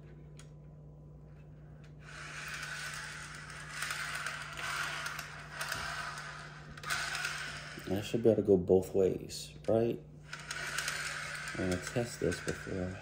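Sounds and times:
model train wheels rolling on track: 2.1s - 8.2s, 10.3s - 13.0s.

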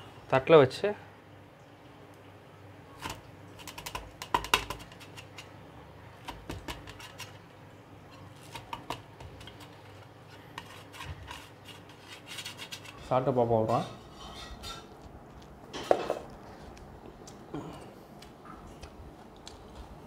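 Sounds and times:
metal spatula scraping steel plate: 9.6s - 14.9s.

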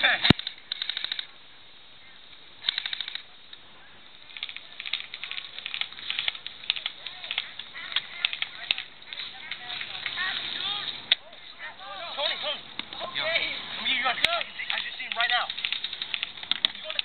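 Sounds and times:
airsoft guns firing: 0.2s - 1.3s.

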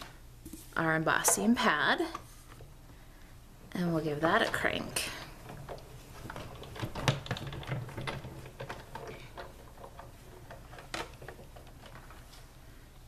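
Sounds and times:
hand-cranked machine clicking and creaking: 4.1s - 12.4s.

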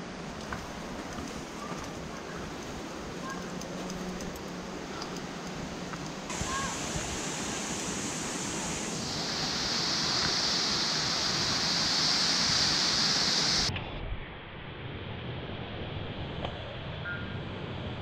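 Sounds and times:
waterfall and stream rushing: 4.6s - 13.7s.

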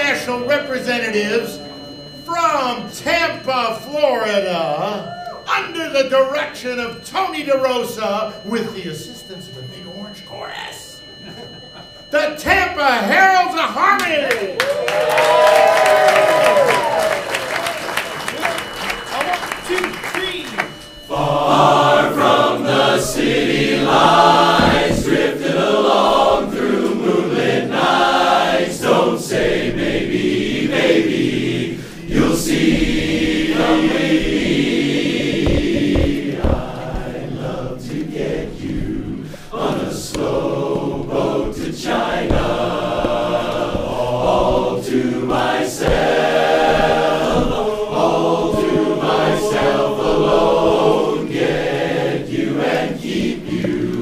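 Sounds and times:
men's chorus singing a cappella: 0.0s - 2.2s, 20.6s - 54.0s.

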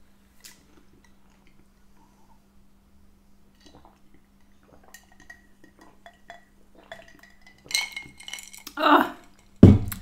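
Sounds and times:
glass jar clinking: 5.0s - 10.0s.

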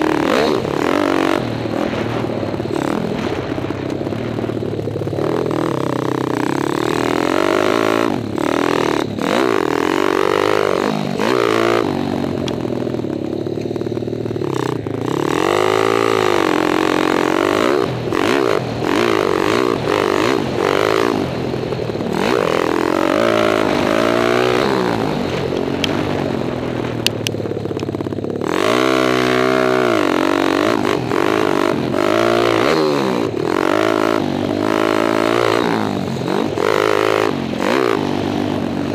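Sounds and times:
dirt bike engine revving: 0.0s - 38.9s.

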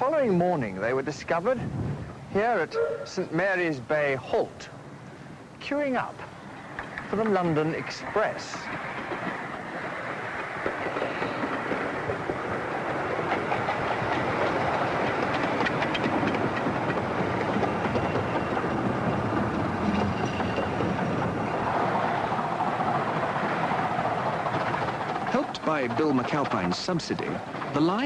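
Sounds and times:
miniature steam train running past: 2.3s - 28.0s
steady tone: 2.6s - 3.4s
wheels clicking over rail joints: 5.8s - 28.0s.

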